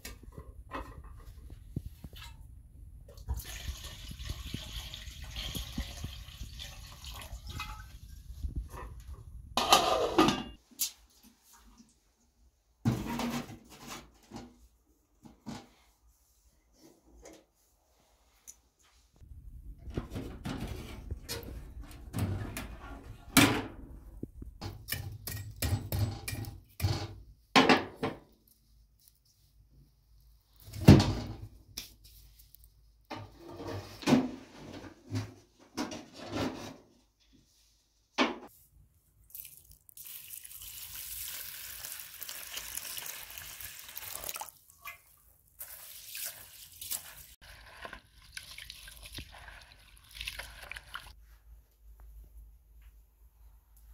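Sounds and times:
water pouring: 0:03.1 - 0:08.4, 0:39.3 - 0:51.2
metal clanks and scrapes: 0:08.5 - 0:10.6, 0:19.8 - 0:23.7.

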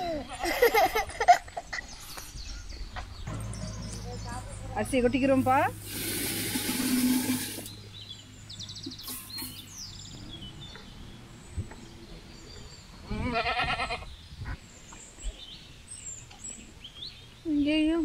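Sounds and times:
rice poured into boiling water: 0:05.8 - 0:07.6
goat bleating: 0:13.1 - 0:14.1.

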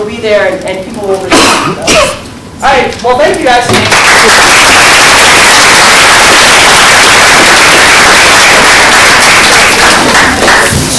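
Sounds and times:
audience applauding: 0:03.8 - 0:10.9.

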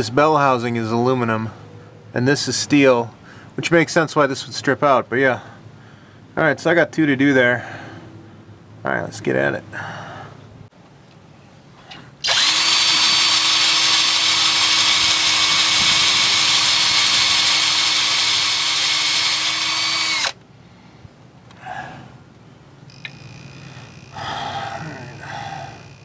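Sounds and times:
cordless drill running: 0:12.2 - 0:20.4.

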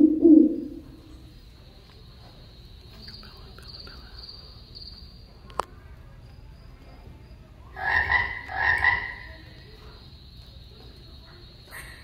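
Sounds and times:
crickets chirring: 0:00.0 - 0:12.0
frog croaks: 0:07.7 - 0:09.7.

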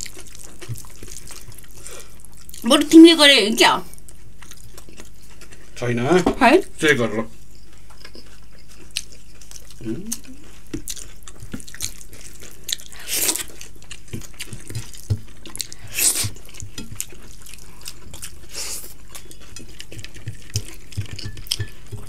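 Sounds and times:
chewing and lip-smacking: 0:00.0 - 0:02.7, 0:03.9 - 0:05.8, 0:07.4 - 0:22.0
fingers squishing food: 0:00.0 - 0:02.7, 0:07.5 - 0:22.0.

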